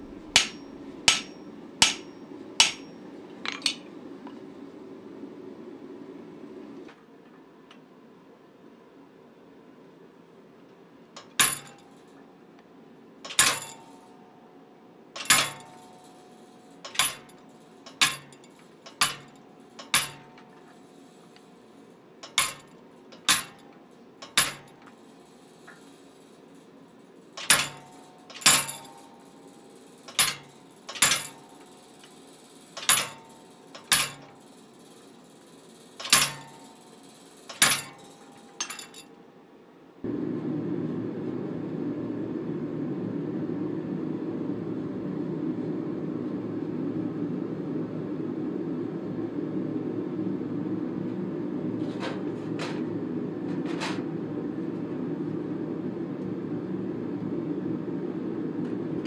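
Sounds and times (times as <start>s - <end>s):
hammer striking hot steel on anvil: 0.0s - 3.8s, 11.2s - 11.9s, 13.2s - 14.0s, 15.2s - 16.2s, 16.8s - 20.7s, 22.2s - 25.0s, 27.4s - 29.1s, 30.1s - 31.7s, 32.8s - 34.3s, 36.0s - 36.6s, 37.5s - 39.0s
steady fan-like noise: 0.0s - 59.0s.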